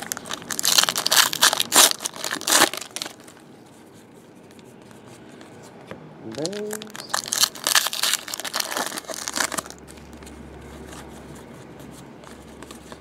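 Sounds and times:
foil pack crinkling and tearing: 0:00.0 - 0:03.4, 0:06.4 - 0:10.1
cards rustling: 0:06.3 - 0:13.0.

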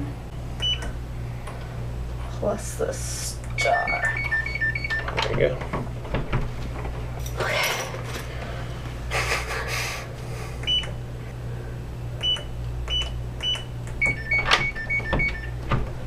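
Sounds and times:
keypad door lock beeping: 0:00.6 - 0:00.9, 0:03.6 - 0:05.2, 0:12.2 - 0:15.6.

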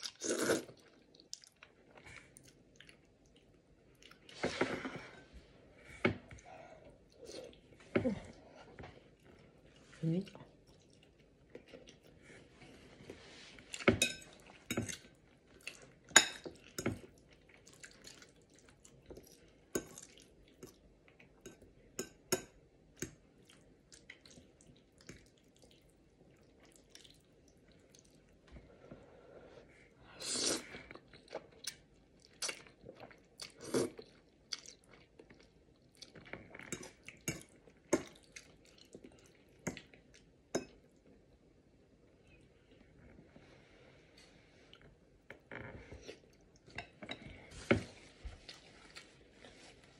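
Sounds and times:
chewing: 0:10.3 - 0:12.5, 0:13.6 - 0:21.4, 0:30.9 - 0:40.3.

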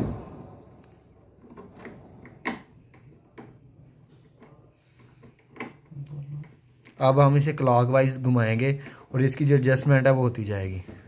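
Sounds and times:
sharp knock: 0:00.0 - 0:00.9.

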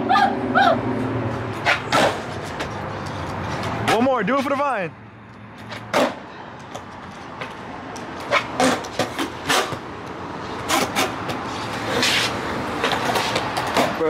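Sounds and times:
skateboard wheels rolling on concrete: 0:00.0 - 0:14.0
skateboard clacks: 0:05.7 - 0:09.9, 0:10.6 - 0:14.0.

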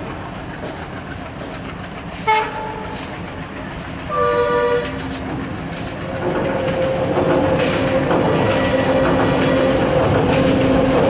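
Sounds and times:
train rumbling: 0:00.0 - 0:11.0
locomotive horn: 0:02.2 - 0:02.9, 0:04.1 - 0:05.2, 0:07.8 - 0:10.0.

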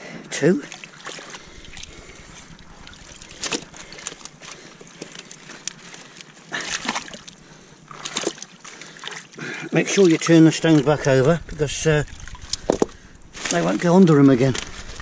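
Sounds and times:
rush of water: 0:00.4 - 0:15.0
shallow seawater sloshing: 0:00.6 - 0:15.0
stones knocking: 0:11.4 - 0:13.6.

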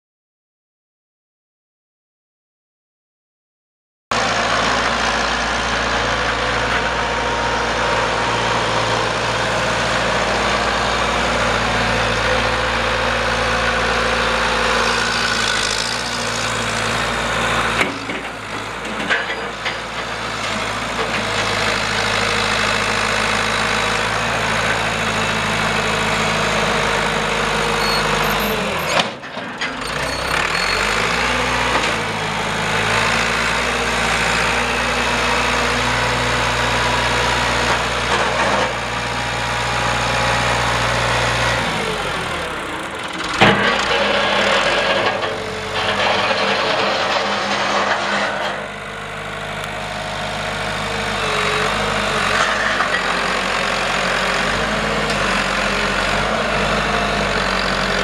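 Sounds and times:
diesel tractor engine running: 0:04.2 - 0:58.0.

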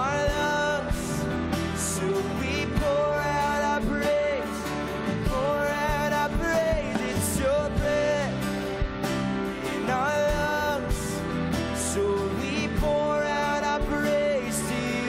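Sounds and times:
man singing: 0:00.0 - 0:15.0
strummed acoustic guitar: 0:00.0 - 0:15.0
drum hits: 0:05.9 - 0:09.3.

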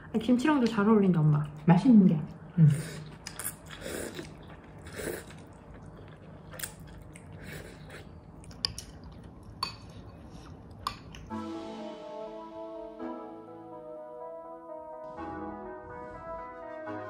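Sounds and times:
chewing: 0:03.0 - 0:11.3.

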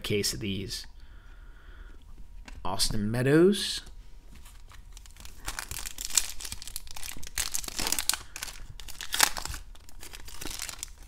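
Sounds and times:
foil wrapper crinkling and tearing: 0:04.5 - 0:11.0.

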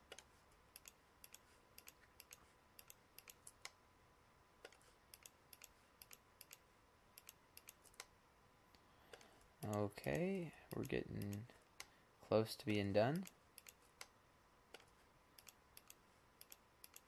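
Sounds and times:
mouse and keyboard clicks: 0:00.0 - 0:03.8, 0:04.6 - 0:06.6, 0:07.2 - 0:08.2, 0:09.1 - 0:11.9, 0:13.2 - 0:17.0.

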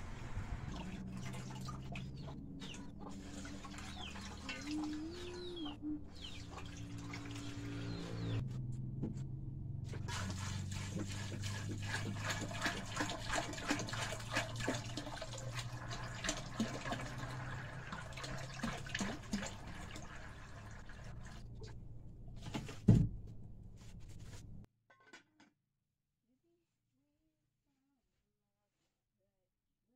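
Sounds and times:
water pouring into metal basin: 0:00.3 - 0:05.3, 0:06.4 - 0:08.2, 0:10.1 - 0:21.6.

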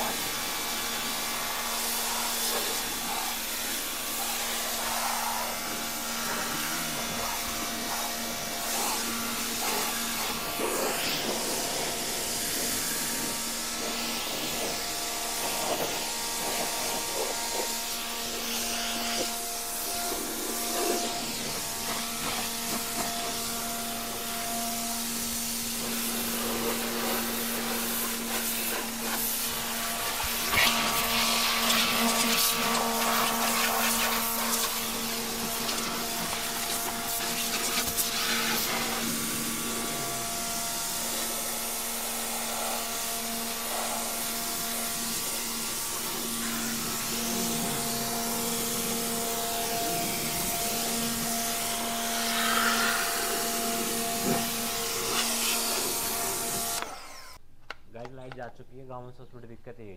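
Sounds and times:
water jet spraying hiss: 0:00.0 - 0:56.9
pressure washer motor humming: 0:00.0 - 0:57.4.

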